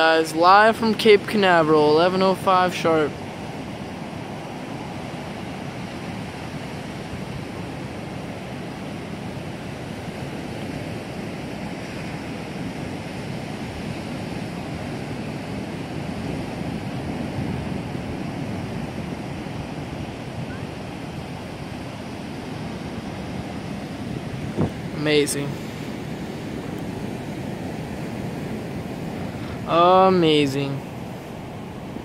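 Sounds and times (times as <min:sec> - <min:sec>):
steady rushing noise: 0:14.5 - 0:32.0.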